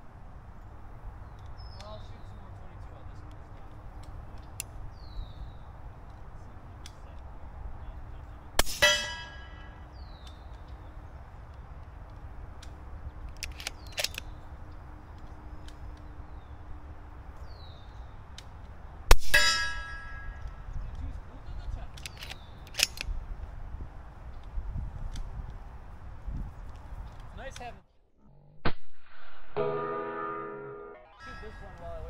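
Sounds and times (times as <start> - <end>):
suppressed rifle shots: 8.6 - 9.5, 19.1 - 20.2
steel target ringing: 8.6 - 9.8, 19.1 - 20.5, 29.4 - 31.9.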